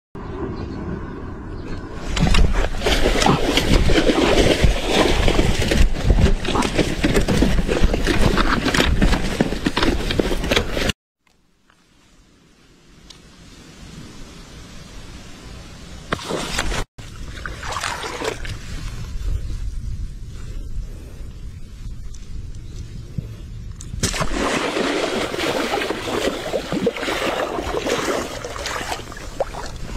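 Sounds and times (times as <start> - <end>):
faint outdoor sound: 0.2 - 29.9
rustling and scraping in wet grass: 2.0 - 11.0, 11.7 - 23.5, 24.3 - 29.9
fish thrashing and splashing: 2.1 - 10.9, 16.2 - 18.7, 24.0 - 29.9.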